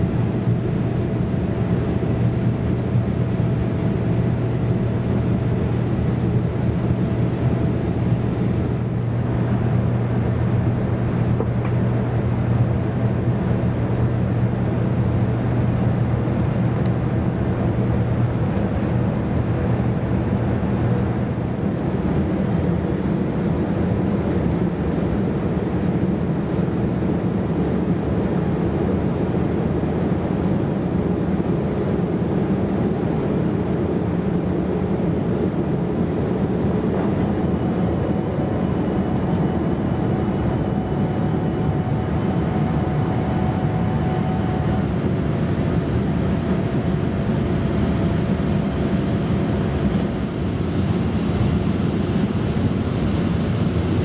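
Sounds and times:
air rushing along fuselage: 0:00.0 - 0:54.0
jet engines at climb power: 0:00.0 - 0:54.0
low hum: 0:35.8 - 0:54.0.

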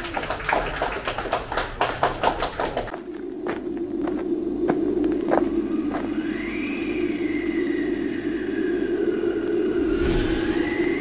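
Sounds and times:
crowd applauding: 0:00.0 - 0:02.9
steady low hum: 0:01.0 - 0:11.0.

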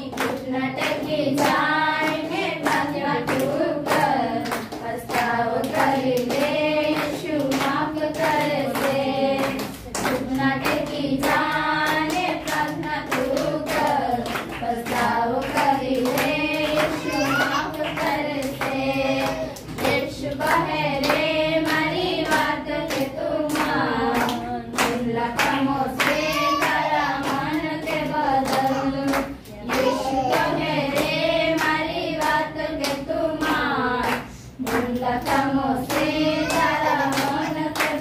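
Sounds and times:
rhythmic hand clapping: 0:00.0 - 0:38.0
women singing in unison: 0:00.0 - 0:38.0.

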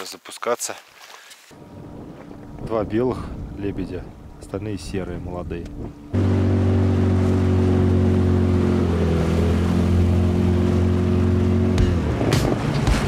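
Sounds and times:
outboard motor running: 0:01.6 - 0:13.0.

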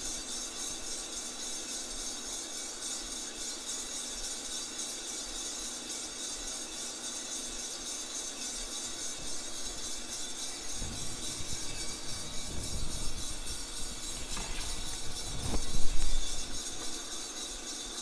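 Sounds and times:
coffee beans tumbling in drum: 0:00.1 - 0:18.0
fan rushing hiss: 0:07.9 - 0:18.0.

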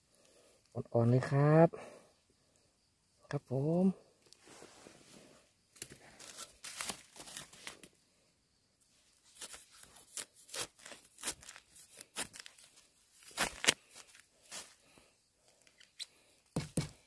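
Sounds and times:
dry leaves and twigs crackling: 0:05.7 - 0:08.0, 0:09.0 - 0:16.0.

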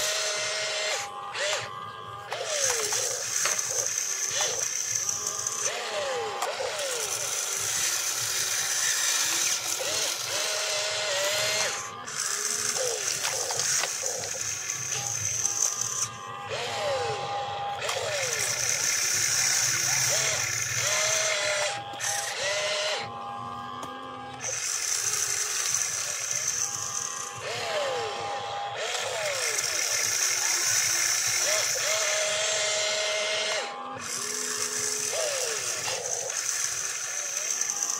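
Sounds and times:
electric motors whirring and ratcheting: 0:00.0 - 0:37.9
steady high whine: 0:00.0 - 0:37.9.

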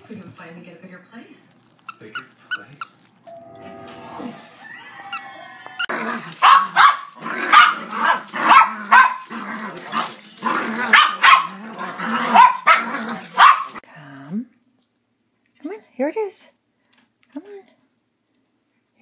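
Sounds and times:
small dog barking: 0:06.4 - 0:09.3, 0:10.9 - 0:13.8.

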